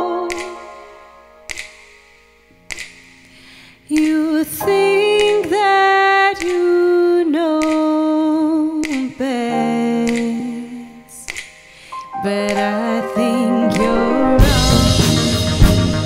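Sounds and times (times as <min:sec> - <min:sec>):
woman singing long notes: 0:12.2 - 0:15.0.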